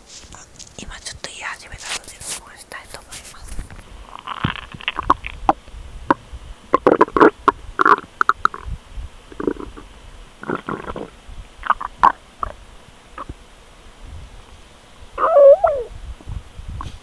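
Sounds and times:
stomach rumbling and gurgling: 0:03.5 - 0:12.6, 0:13.2 - 0:13.4.

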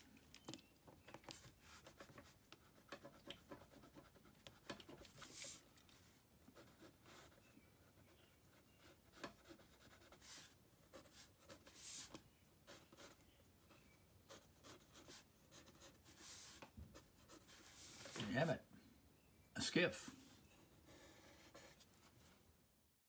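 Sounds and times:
pen scratching on paper: 0:01.3 - 0:05.6, 0:06.6 - 0:13.2, 0:14.3 - 0:18.2, 0:20.9 - 0:21.8.

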